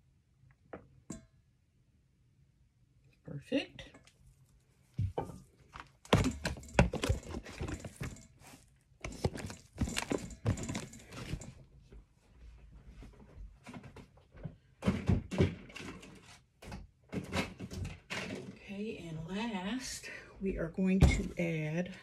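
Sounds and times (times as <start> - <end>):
plastic tubs knocking and clattering: 5.0 - 8.3, 9.0 - 11.6, 13.7 - 18.7.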